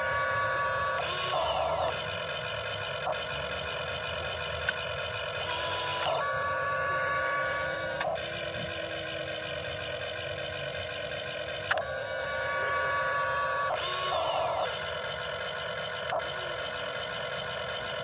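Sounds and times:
electric motors whining: 0:00.0 - 0:18.0
sharp clicks: 0:11.6 - 0:11.9.

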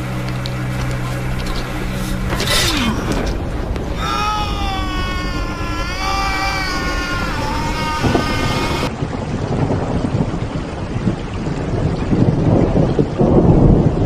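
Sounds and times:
heavy rain: 0:00.0 - 0:10.8.

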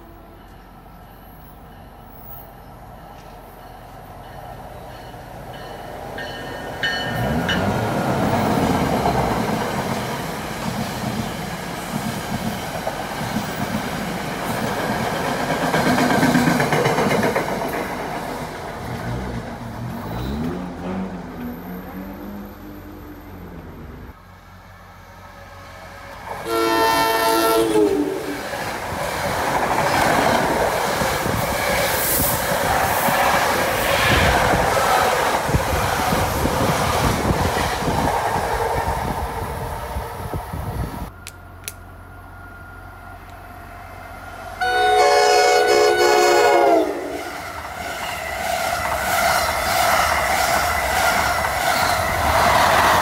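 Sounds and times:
trains passing at speed: 0:00.0 - 0:53.0
train horn chord: 0:26.4 - 0:28.3, 0:44.6 - 0:47.3.

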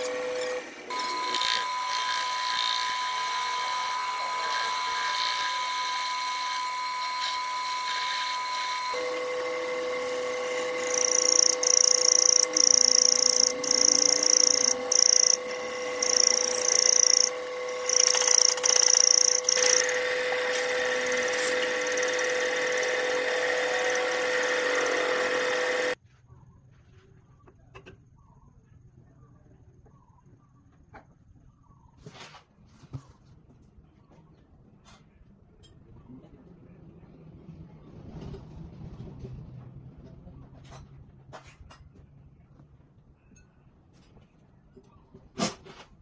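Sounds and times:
high-pitched cutting whine: 0:00.0 - 0:26.0
metal lathe humming: 0:00.0 - 0:26.0.

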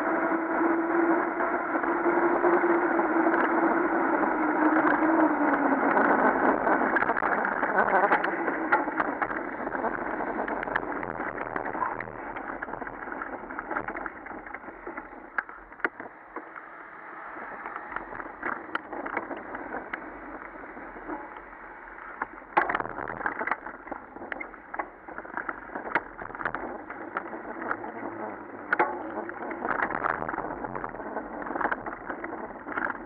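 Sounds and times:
wind and tyre noise: 0:00.0 - 0:33.0
bike knocks and rattles: 0:06.7 - 0:16.6, 0:22.1 - 0:33.0.

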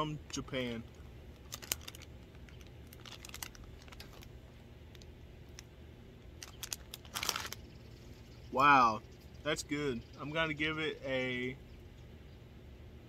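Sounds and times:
low background rumble: 0:00.0 - 0:13.0
plastic bag crinkling: 0:00.9 - 0:05.6, 0:06.4 - 0:07.6.

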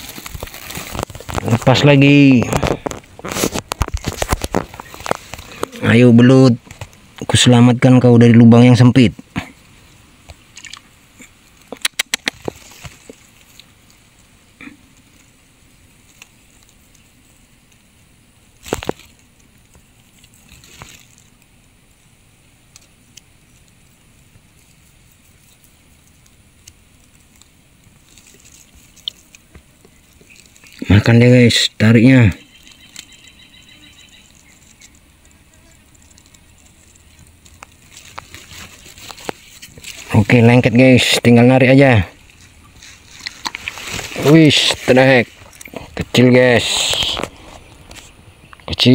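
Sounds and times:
fishing line rustling: 0:00.0 - 0:05.8, 0:18.6 - 0:21.5, 0:22.8 - 0:31.0, 0:34.0 - 0:41.2, 0:42.0 - 0:48.2
faint outdoor background: 0:00.0 - 0:48.9
faint ticks: 0:09.3 - 0:18.0, 0:18.6 - 0:30.9, 0:32.3 - 0:40.2
water splashing and sloshing: 0:10.5 - 0:11.0
sharp clicks: 0:11.6 - 0:12.6.

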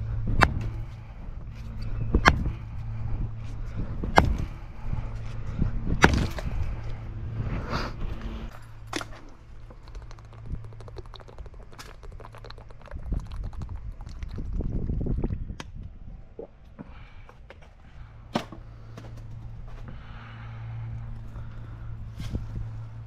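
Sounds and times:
plastic water bottle crackling: 0:08.8 - 0:14.8.

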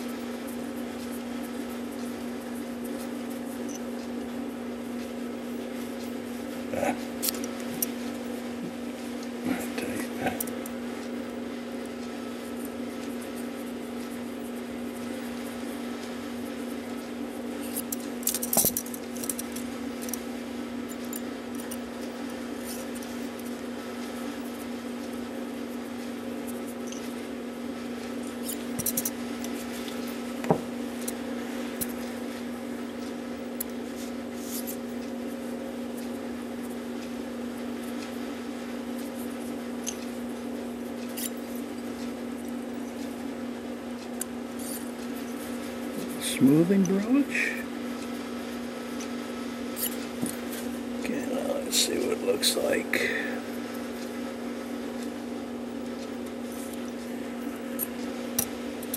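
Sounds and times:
steady hum: 0:00.0 - 0:58.9
metal tool scraping and clicking: 0:28.4 - 0:29.2, 0:41.0 - 0:41.4, 0:49.8 - 0:50.0.

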